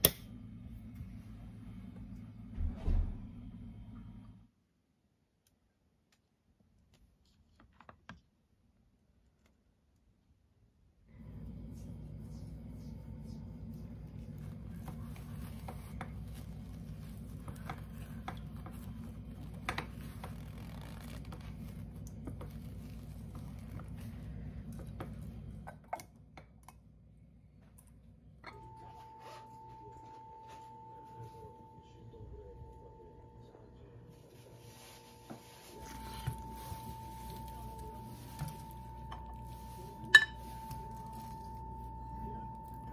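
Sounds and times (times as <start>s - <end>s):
steady low hum: 0.0s - 4.5s, 11.1s - 42.9s
glass container clink: 40.0s - 41.1s.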